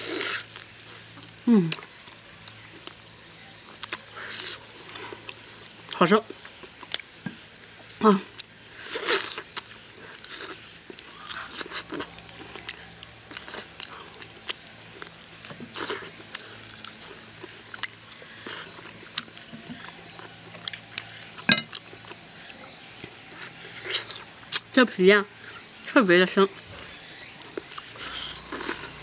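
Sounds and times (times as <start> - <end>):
person chewing meat off bone: 7.8 - 24.6, 26.9 - 29.0.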